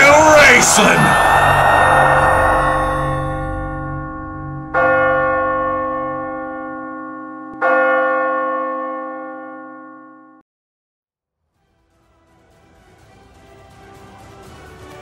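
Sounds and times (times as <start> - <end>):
bell tolling: 0.0 - 9.2.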